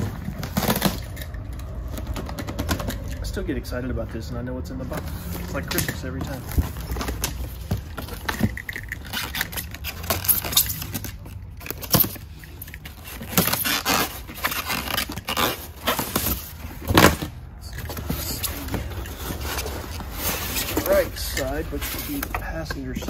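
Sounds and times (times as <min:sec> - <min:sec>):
cardboard flaps scraping and rustling: 0:00.0 - 0:03.2, 0:04.9 - 0:23.0.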